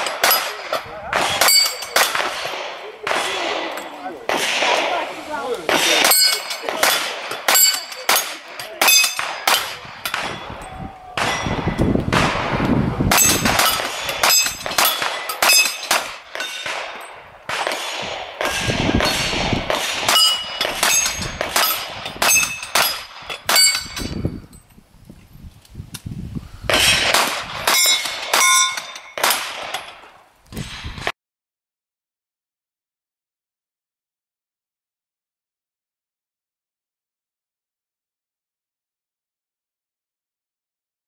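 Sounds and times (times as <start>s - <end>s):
steel target plate clanging: 0.0s - 2.3s, 5.6s - 11.8s, 13.1s - 17.2s, 20.0s - 24.6s, 27.7s - 30.1s
rapid handgun shots: 0.0s - 10.6s, 11.2s - 24.1s, 26.7s - 30.0s.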